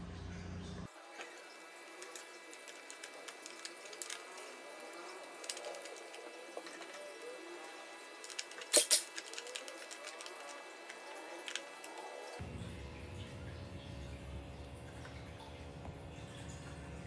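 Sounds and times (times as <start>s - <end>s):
low steady hum: 0.0s - 17.0s
hands handling battery cables: 2.0s - 7.2s, 8.2s - 12.0s.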